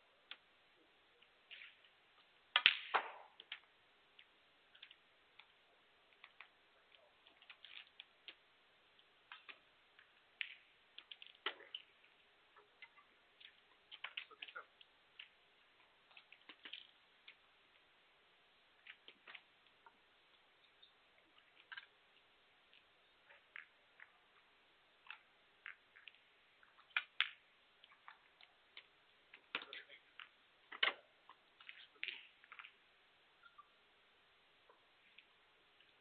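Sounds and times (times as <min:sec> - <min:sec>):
faint clicks and taps: 0:03.4 - 0:08.4.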